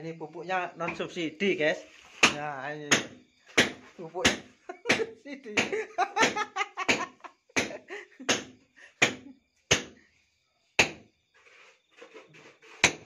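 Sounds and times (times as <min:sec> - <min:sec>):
hammer striking brick: 0:02.2 - 0:10.0, 0:10.8 - 0:11.0, 0:12.8 - 0:13.0.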